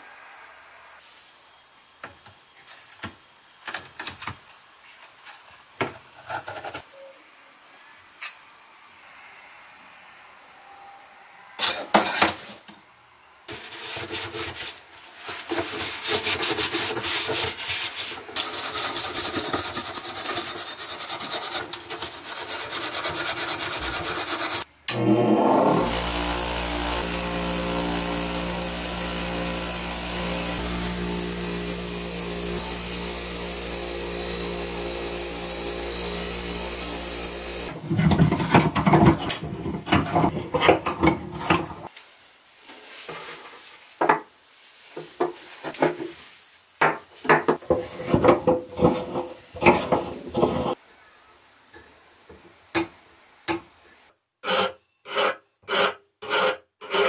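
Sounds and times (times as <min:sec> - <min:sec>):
bench grinder wire wheel: 0:18.4 - 0:41.9, 0:47.8 - 0:50.8.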